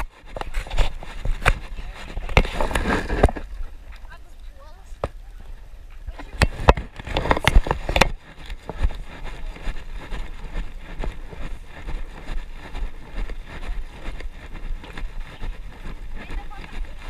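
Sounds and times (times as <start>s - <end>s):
running footsteps on asphalt: 0.0s - 17.0s
wind rumble on microphone: 0.0s - 17.0s.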